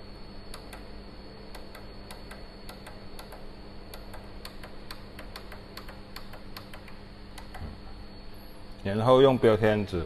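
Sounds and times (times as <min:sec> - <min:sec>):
steady electrical hum: 0:00.0 - 0:10.0
rapid light clicking: 0:00.5 - 0:00.9, 0:01.5 - 0:07.8.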